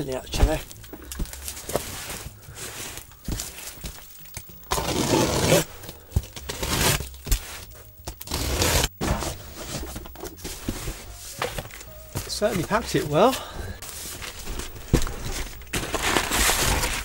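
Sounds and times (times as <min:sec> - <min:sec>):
plastic crinkling and rustling: 0:00.0 - 0:17.0
plastic wrap tearing: 0:04.7 - 0:08.9, 0:14.8 - 0:17.0.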